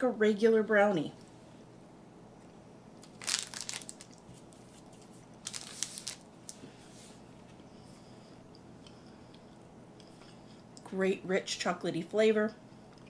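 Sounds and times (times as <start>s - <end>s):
plastic wrapper crinkling: 3.0s - 6.6s.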